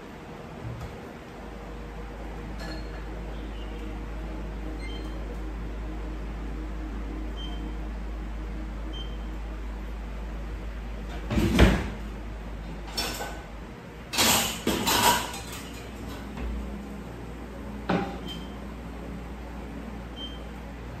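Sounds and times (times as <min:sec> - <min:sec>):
steady low hum: 0:00.0 - 0:21.0
kitchen knocks and clattering: 0:14.1 - 0:15.8.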